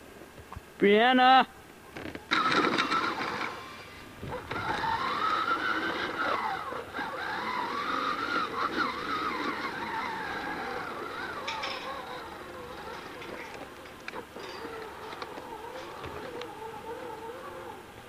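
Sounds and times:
toy car electric motor whining: 2.3s - 18.0s
brief clattering: 10.7s - 16.5s.

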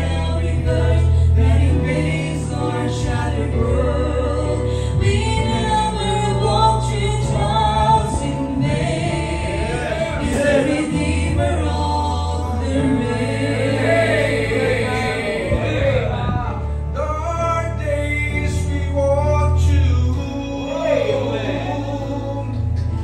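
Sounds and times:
held low bass notes: 0.0s - 23.0s
woman singing: 3.6s - 9.6s
man singing: 14.9s - 22.8s.

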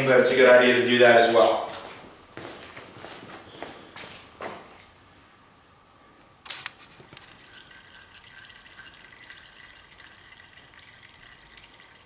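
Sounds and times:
oil pouring into plastic pan: 6.9s - 12.0s.

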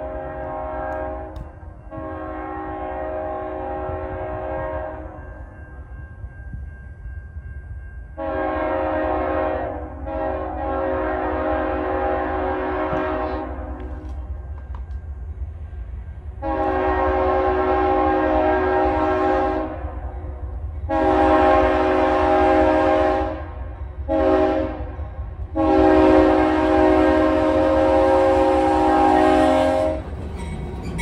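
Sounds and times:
locomotive air horn blasts: 0.0s - 5.2s, 8.2s - 14.0s, 16.4s - 20.1s, 20.9s - 30.2s
train rumble: 0.0s - 31.0s.

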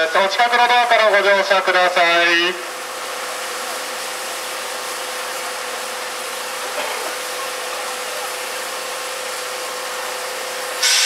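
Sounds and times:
steam hissing: 2.2s - 11.0s.

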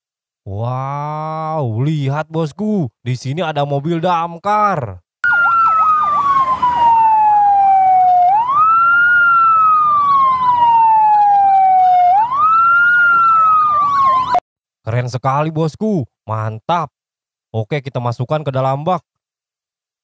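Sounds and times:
siren wailing: 5.2s - 14.4s
siren yelping: 5.2s - 14.4s.

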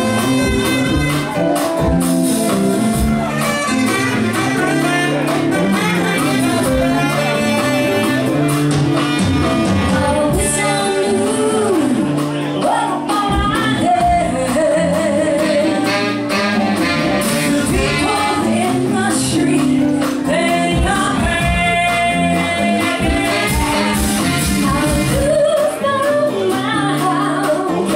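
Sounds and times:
funk band playing: 0.0s - 27.9s
woman singing: 9.7s - 27.9s.

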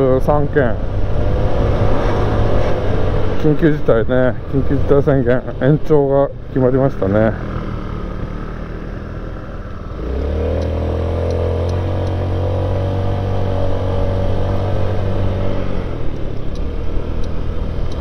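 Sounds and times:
wind noise: 0.8s - 5.0s
scooter engine droning: 4.4s - 18.0s.

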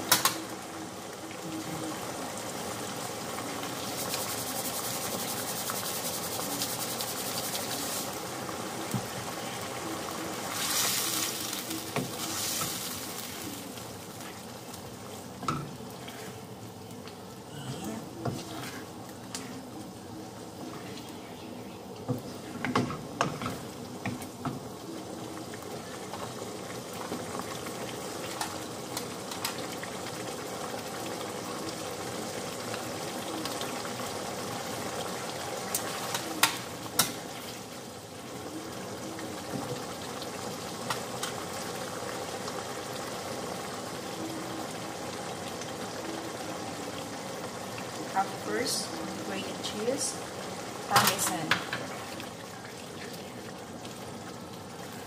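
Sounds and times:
sauce simmering and bubbling: 0.0s - 55.0s
wooden spoon stirring and scraping: 3.7s - 8.2s, 18.0s - 19.6s.

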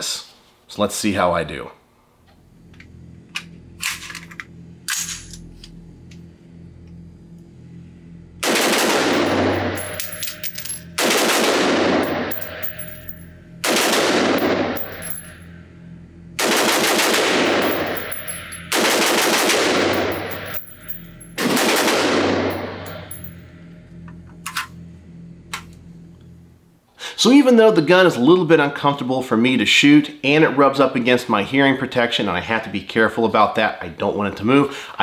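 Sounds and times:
rapid gunshots echoing indoors: 8.4s - 9.5s, 11.0s - 12.2s, 13.6s - 14.8s, 16.4s - 17.8s, 18.7s - 20.1s, 21.4s - 22.7s.

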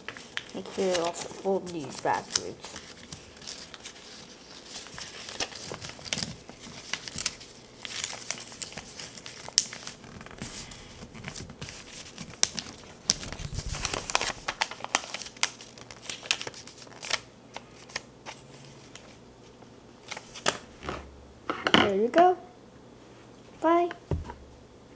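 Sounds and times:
paper being folded and creased: 0.0s - 19.2s, 20.0s - 20.6s.

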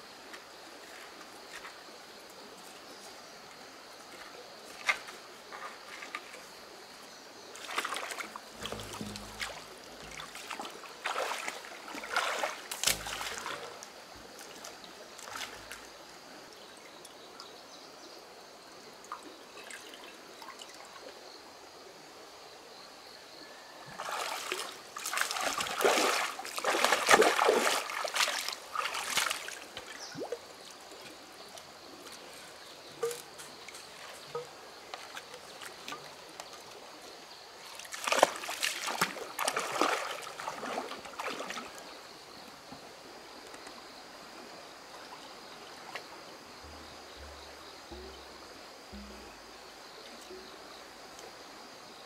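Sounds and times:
stream water splashing: 4.6s - 17.0s, 19.0s - 21.2s, 23.9s - 42.3s, 44.2s - 51.9s.

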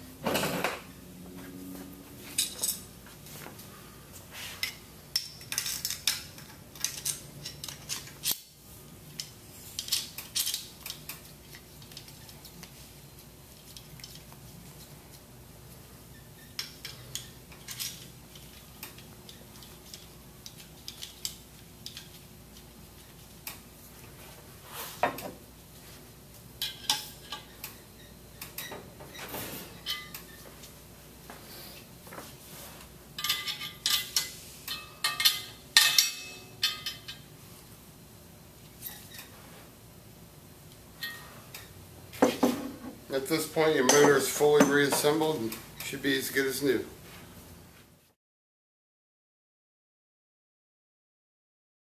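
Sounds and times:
metal parts clinking: 5.2s - 8.4s, 9.2s - 10.9s.

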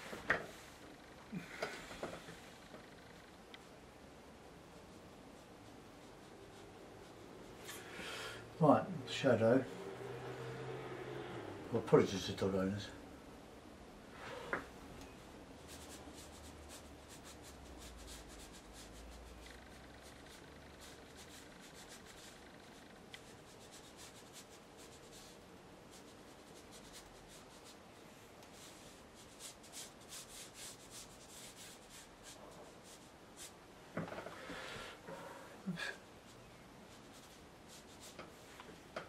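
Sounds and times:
brush strokes on paper: 4.5s - 7.9s, 15.6s - 33.6s, 35.7s - 38.7s.

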